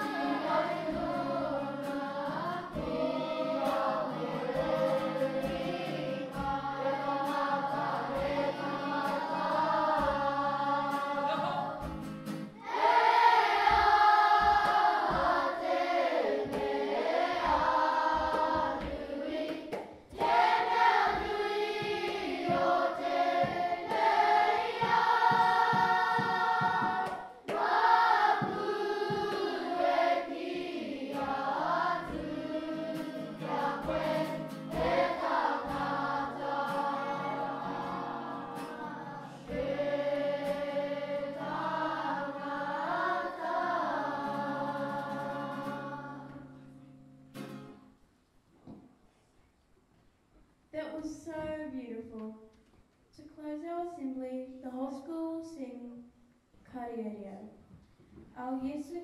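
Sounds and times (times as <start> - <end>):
choir singing: 0.0 - 12.0, 12.6 - 46.5
instrumental backing music: 0.0 - 47.8.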